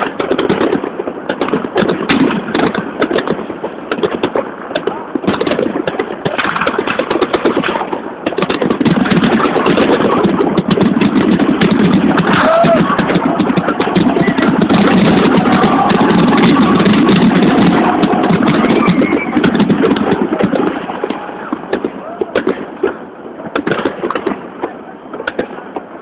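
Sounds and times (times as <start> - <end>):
fireworks bangs and crackles: 0.0 - 26.0
crowd murmur: 11.5 - 26.0.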